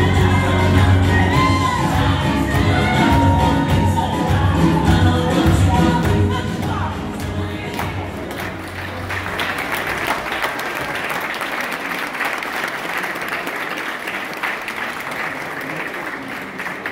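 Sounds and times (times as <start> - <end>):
samba music: 0.0 - 11.0
audience applauding: 7.2 - 16.9.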